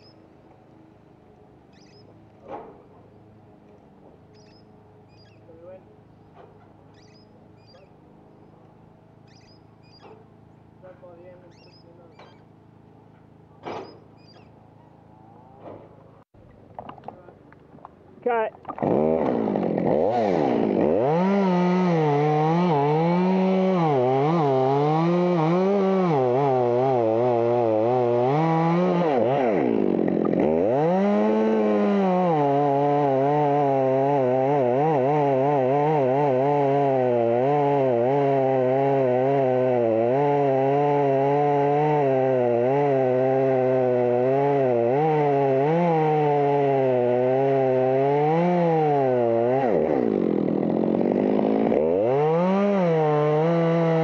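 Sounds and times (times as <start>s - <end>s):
chainsaw cutting wood: 18.6s - 54.0s.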